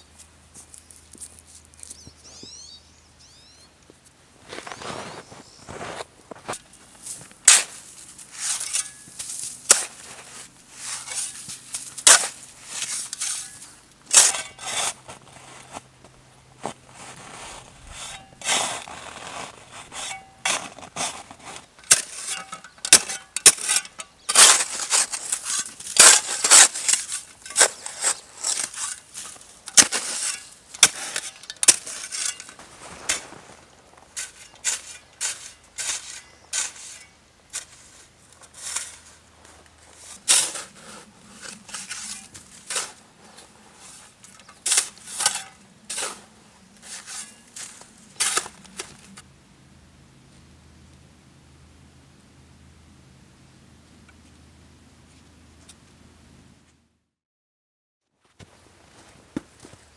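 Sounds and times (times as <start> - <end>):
snow crunching and scraping: 4.4 - 49.2.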